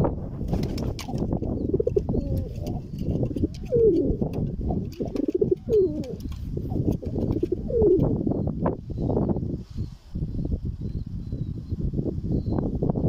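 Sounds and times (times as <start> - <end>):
pigeons cooing: 0.8 - 8.2.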